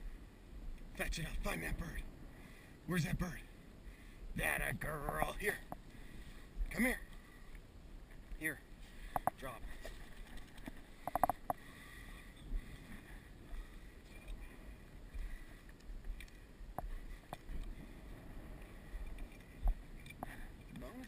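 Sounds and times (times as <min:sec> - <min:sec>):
wind rumbling on microphone: 0:00.0 - 0:21.0
faint rustling: 0:05.5 - 0:20.8
sharp clicks: 0:09.1 - 0:09.4, 0:10.2 - 0:11.6.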